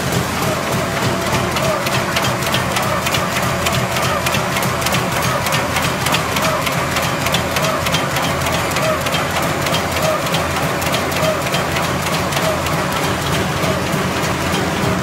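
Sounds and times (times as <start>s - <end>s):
machine rapid mechanical clatter: 0.0s - 15.0s.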